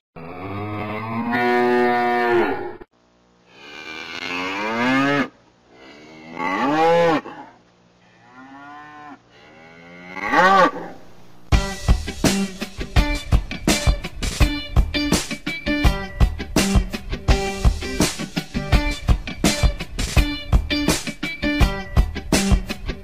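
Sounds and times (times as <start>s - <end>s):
cattle mooing: 0.2s - 2.8s, 3.6s - 5.3s, 8.2s - 11.0s
band with guitar and drums: 11.5s - 23.0s.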